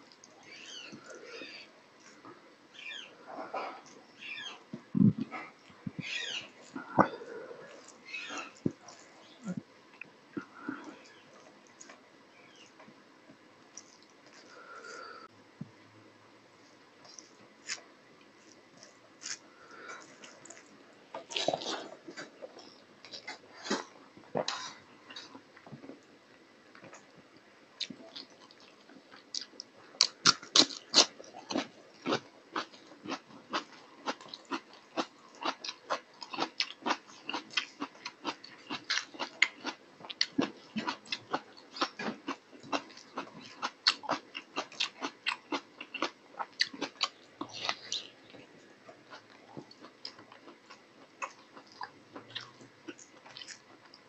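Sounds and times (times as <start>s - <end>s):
person chewing and smacking: 27.8s - 54.0s.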